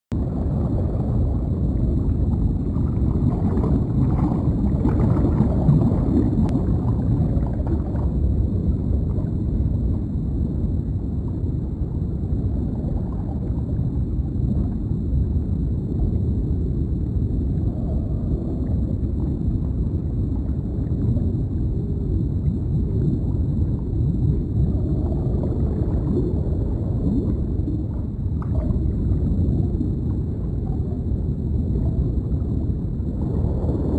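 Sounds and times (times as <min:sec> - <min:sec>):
low underwater rumble: 0:00.1 - 0:33.9
soft bubbling and gurgling: 0:00.1 - 0:33.9.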